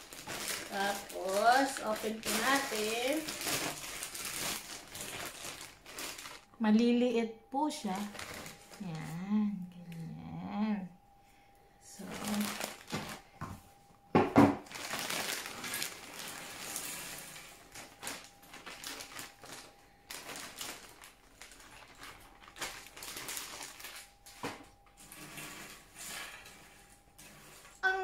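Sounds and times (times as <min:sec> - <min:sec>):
rustling: 0:00.0 - 0:06.4, 0:12.0 - 0:13.2, 0:14.7 - 0:24.4.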